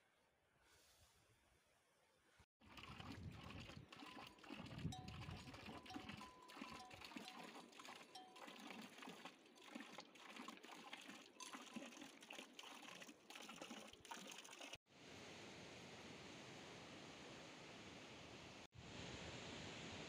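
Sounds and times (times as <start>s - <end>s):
goat bell ringing: 4.0s - 8.9s.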